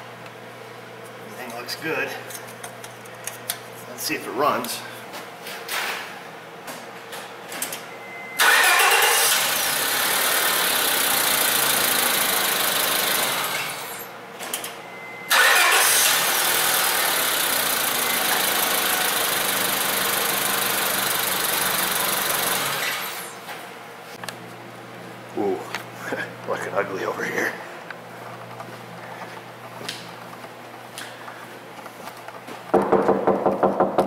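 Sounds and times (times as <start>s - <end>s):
car engine starting and running: 8.4s - 10.8s, 15.3s - 17.8s.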